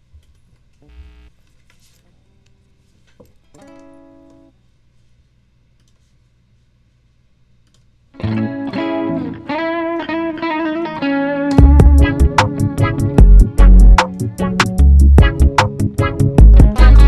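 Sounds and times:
low steady hum: 0:00.0 - 0:08.3
electric guitar notes: 0:08.2 - 0:17.0
loud strummed guitar chords: 0:08.2 - 0:17.0.

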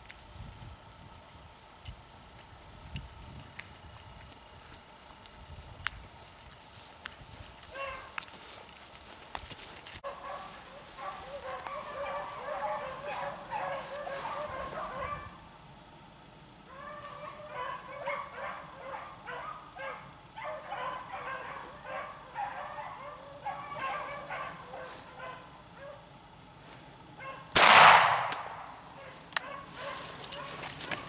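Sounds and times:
dogs baying: 0:07.6 - 0:09.1, 0:10.0 - 0:15.4, 0:16.7 - 0:26.1, 0:28.9 - 0:31.0
shotgun blast: 0:27.6 - 0:28.6.

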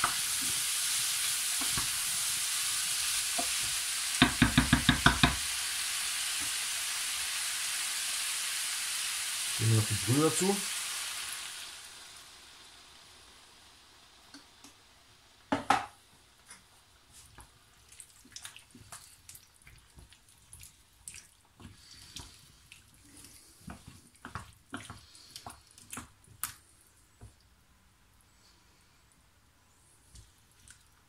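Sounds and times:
wooden spatula stirring vegetables: 0:00.0 - 0:05.5, 0:16.4 - 0:26.5
spatula knocking on pan: 0:03.4 - 0:05.4, 0:15.5 - 0:15.9.

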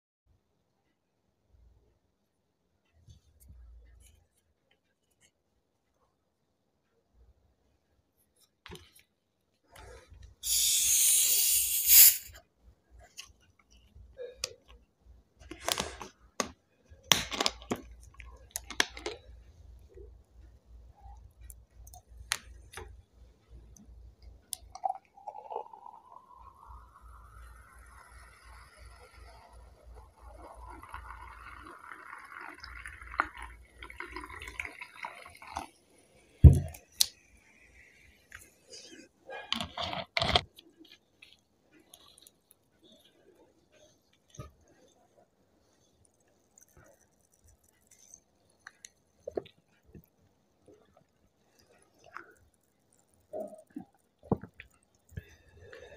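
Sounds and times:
soda fizzing over ice: 0:10.4 - 0:12.3, 0:24.6 - 0:35.8
gas hissing from bottle: 0:10.4 - 0:12.4.

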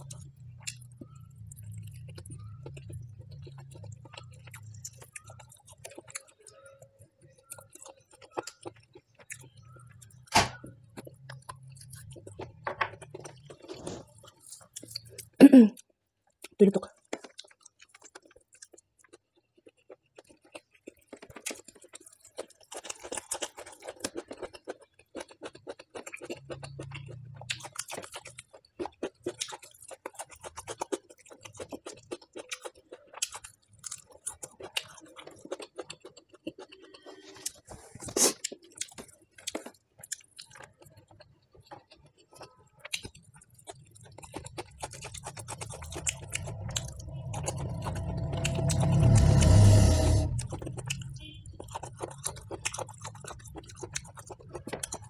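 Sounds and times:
person chewing food: 0:00.0 - 0:55.0.

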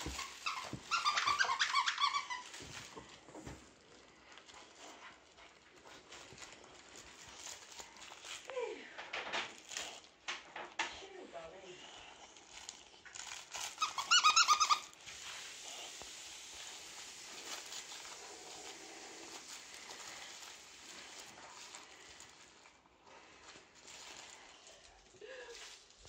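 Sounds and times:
toy squeals: 0:00.0 - 0:02.8, 0:13.6 - 0:15.0.

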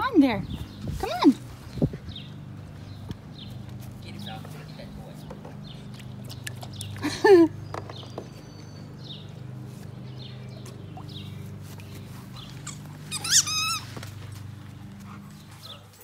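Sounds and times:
dog whining: 0:12.6 - 0:14.0.

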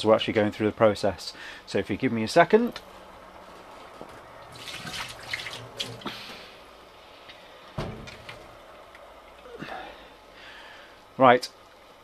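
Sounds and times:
liquid trickling and dripping: 0:04.4 - 0:06.4.

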